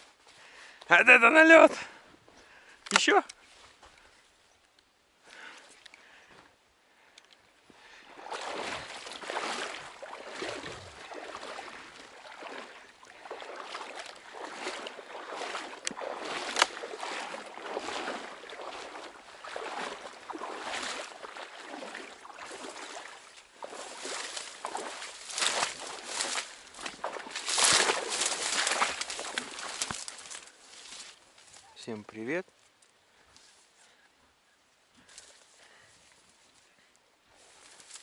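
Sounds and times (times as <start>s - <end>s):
dry reeds rustling: 13.5s - 31.8s, 37.4s - 38.0s.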